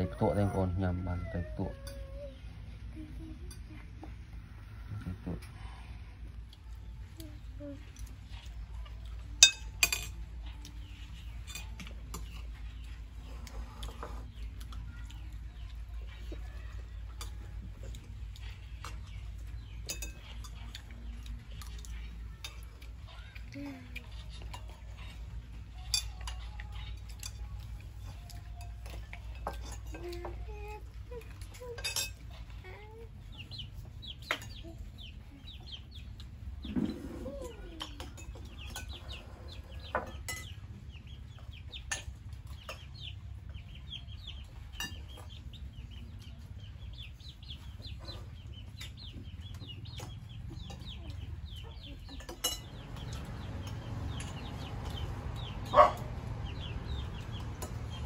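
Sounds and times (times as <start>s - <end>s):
birds chirping: 0.0s - 58.0s
spoons and dishes clinking: 9.2s - 12.9s, 18.6s - 23.0s, 24.2s - 32.6s, 39.8s - 40.6s, 52.1s - 53.4s.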